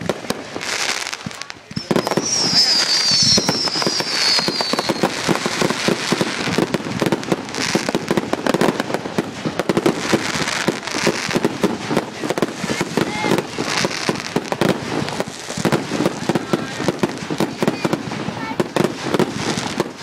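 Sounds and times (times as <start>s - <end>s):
fireworks crackling and popping: 0.0s - 20.0s
falling firework whistle: 0.6s - 8.4s.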